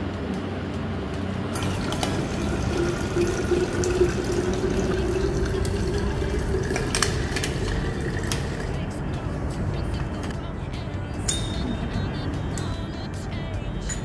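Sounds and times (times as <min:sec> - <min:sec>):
liquid pouring into metal canister: 0:01.6 - 0:08.9.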